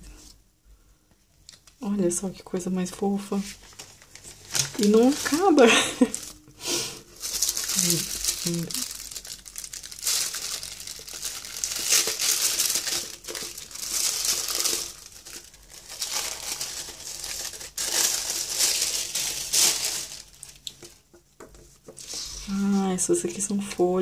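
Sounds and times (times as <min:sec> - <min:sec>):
paper wrapping crinkling: 0:03.4 - 0:21.1.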